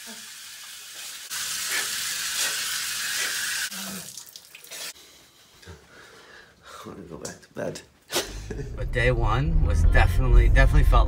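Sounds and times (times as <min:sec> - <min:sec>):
shower spray hissing: 0:00.0 - 0:04.0.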